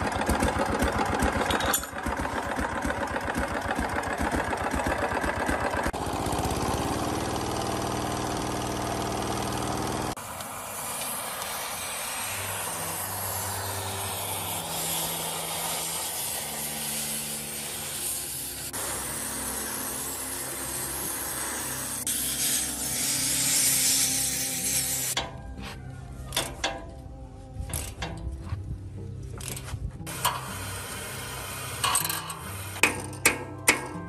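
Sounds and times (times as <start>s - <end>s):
gas torch flame hissing: 10.2s - 25.2s, 30.1s - 32.8s
scraping on rusted steel: 10.6s - 27.0s, 29.3s - 34.0s.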